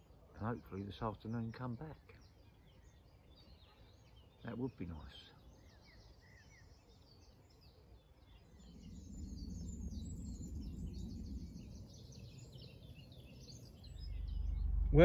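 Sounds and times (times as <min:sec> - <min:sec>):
birds chirping: 0:00.0 - 0:15.0
low rumble: 0:08.4 - 0:15.0.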